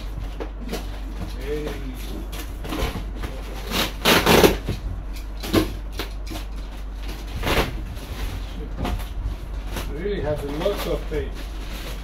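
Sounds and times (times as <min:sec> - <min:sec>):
cardboard and plastic rustling: 0:00.0 - 0:12.0.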